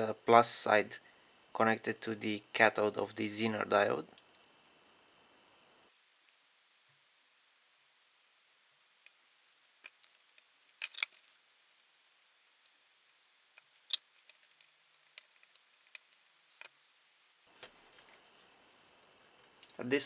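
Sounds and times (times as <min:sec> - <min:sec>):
small clicks handling circuit board: 0:09.0 - 0:11.4, 0:12.6 - 0:16.8.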